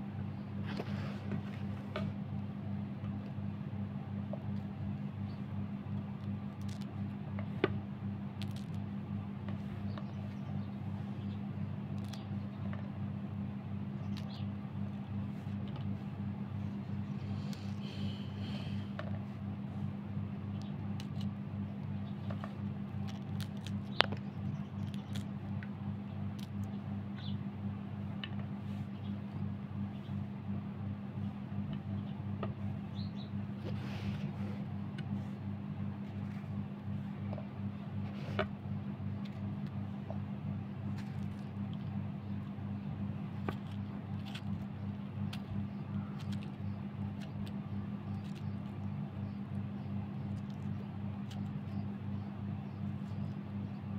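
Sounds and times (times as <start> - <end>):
steady low hum: 0.0 - 53.9
knife cutting carrot clicks: 46.1 - 46.6.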